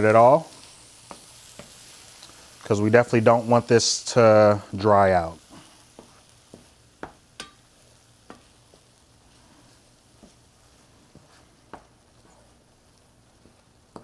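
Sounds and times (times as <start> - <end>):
faint sizzle: 0.0 - 14.0
wooden spoon knocking on pan: 6.0 - 7.6, 8.3 - 8.8, 13.5 - 14.0.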